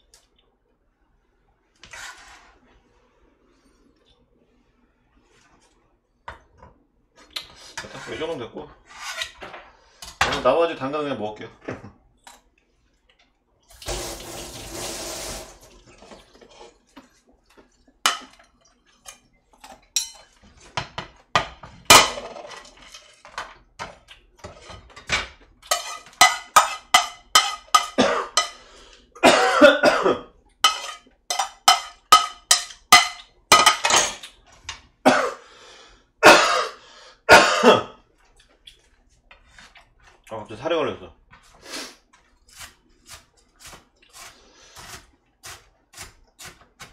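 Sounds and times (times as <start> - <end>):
kitchen tap running: 13.7 - 16.3.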